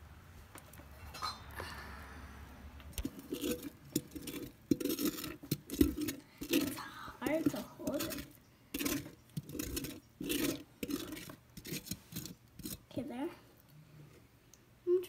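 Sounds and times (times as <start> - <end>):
wet slime squelching: 2.9 - 13.0.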